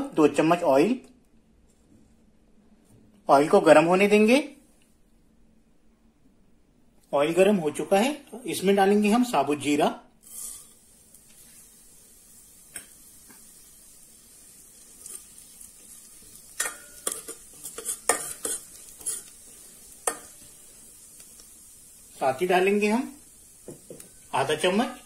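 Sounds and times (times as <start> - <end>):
metal spoon scraping a pan: 10.2 - 10.8, 15.0 - 15.4, 16.3 - 20.5
seeds sizzling in hot oil: 10.2 - 25.0.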